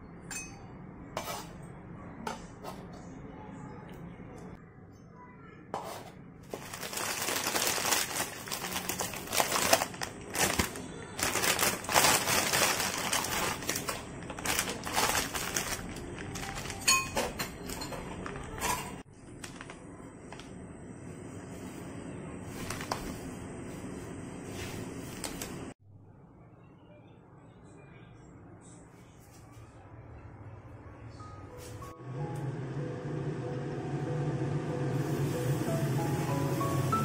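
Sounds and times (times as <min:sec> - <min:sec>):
plastic wrapper crinkling: 0:06.5 - 0:17.1, 0:19.4 - 0:19.8.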